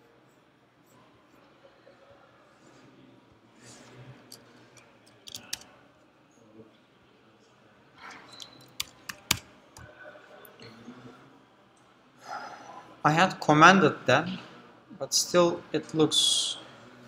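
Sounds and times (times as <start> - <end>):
computer keyboard tapping: 5.1 - 5.6, 8.4 - 9.9.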